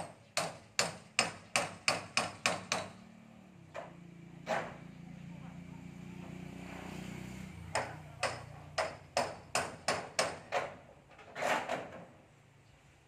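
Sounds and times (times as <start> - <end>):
hammer on metal roofing: 0.0 - 3.0, 7.7 - 12.1.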